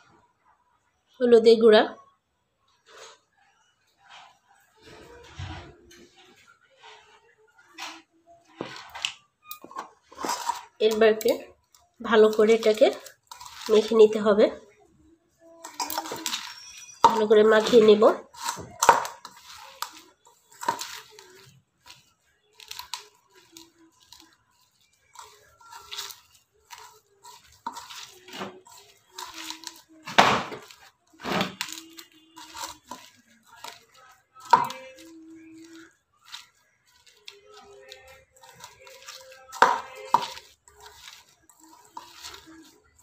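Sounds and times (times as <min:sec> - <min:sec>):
hand squishing paste in bowl: 0:10.1 - 0:14.2, 0:15.7 - 0:43.0
hand squishing moist mix: 0:30.6 - 0:43.0.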